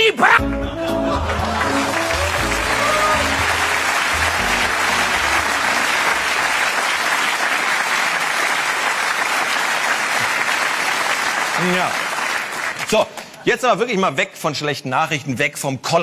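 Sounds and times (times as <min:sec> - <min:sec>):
music playing: 0:00.0 - 0:06.8
audience applauding: 0:00.4 - 0:13.4.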